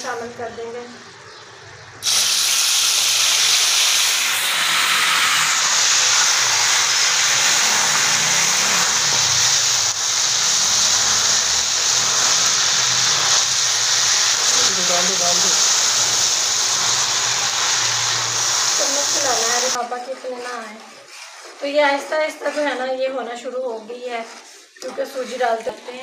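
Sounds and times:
semolina sizzling in hot oil: 2.0s - 20.4s.

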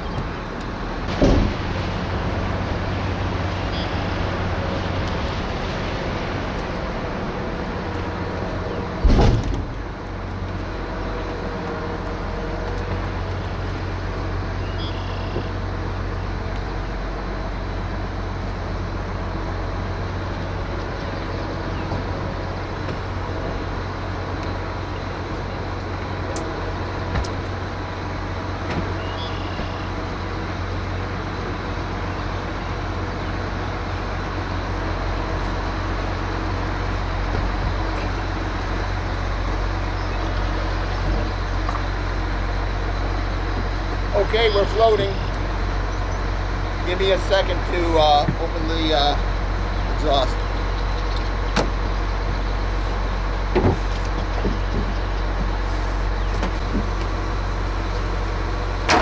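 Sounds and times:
engine humming: 0.0s - 59.0s.

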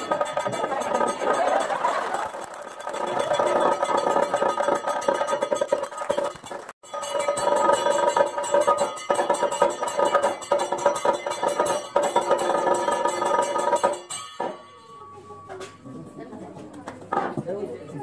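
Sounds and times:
rapid dense percussion: 0.0s - 14.9s.

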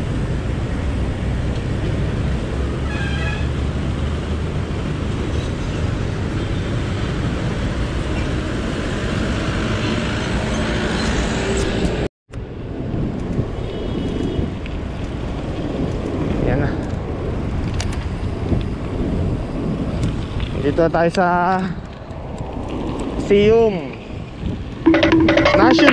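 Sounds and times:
road traffic: 0.0s - 25.9s
wind rumble on microphone: 11.6s - 25.9s.

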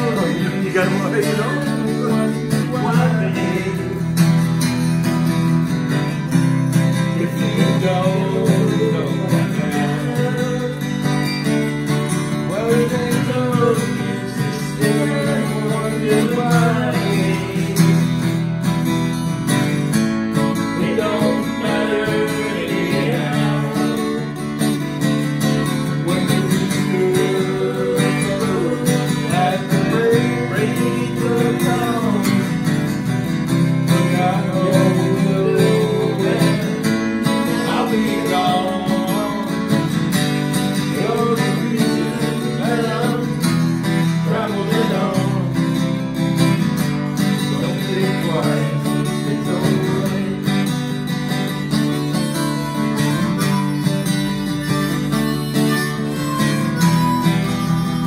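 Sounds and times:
man singing: 0.0s - 4.5s, 6.9s - 18.6s, 20.5s - 24.8s, 25.6s - 32.8s, 33.8s - 46.1s, 47.2s - 50.9s
acoustic guitar strumming: 0.0s - 58.0s.

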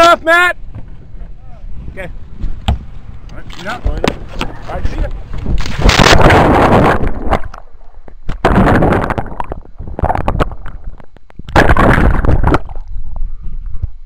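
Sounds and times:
water splashing and churning: 3.5s - 13.2s.

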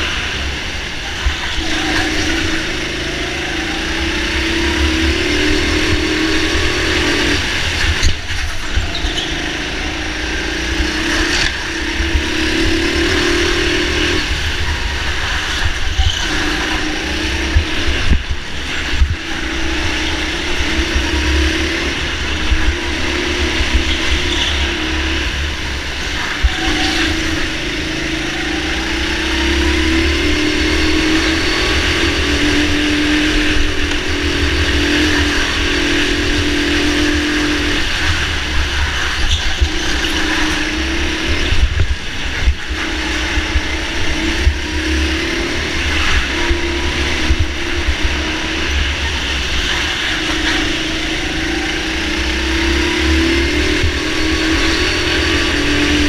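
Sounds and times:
go-kart motor running: 0.0s - 56.0s
wind on microphone: 11.8s - 26.7s.

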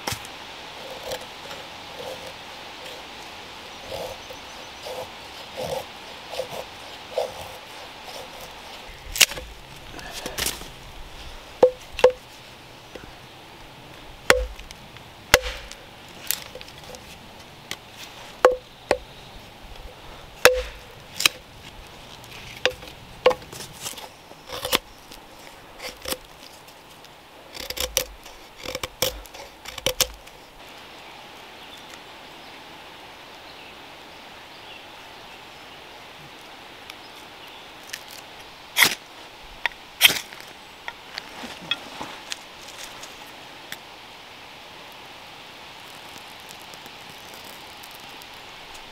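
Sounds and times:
hatchet chopping wood: 11.6s - 12.2s, 14.3s - 14.7s, 15.3s - 16.5s, 18.4s - 19.1s, 20.4s - 21.4s, 22.6s - 23.5s, 27.6s - 30.2s.

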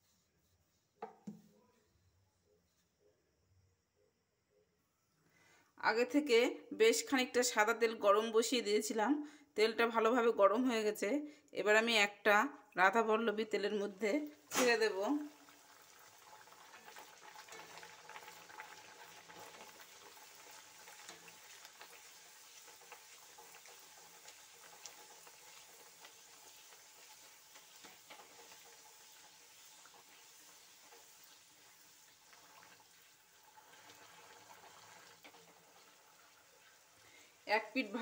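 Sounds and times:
hot oil sizzling and crackling: 14.3s - 38.0s.

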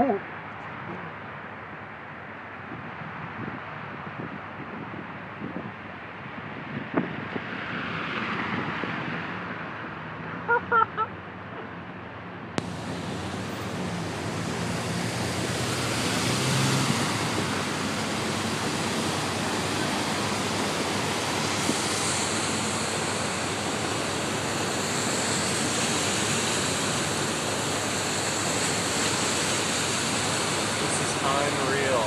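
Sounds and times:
floodwater rushing: 12.6s - 32.0s.

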